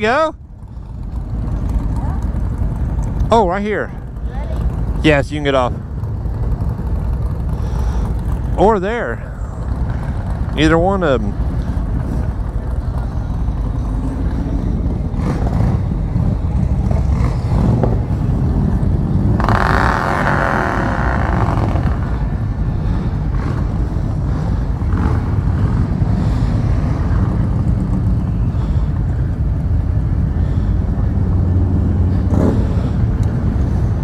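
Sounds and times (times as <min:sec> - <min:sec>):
motorcycle engine rumbling: 0:00.0 - 0:34.0
other motorcycle engines: 0:00.0 - 0:34.0.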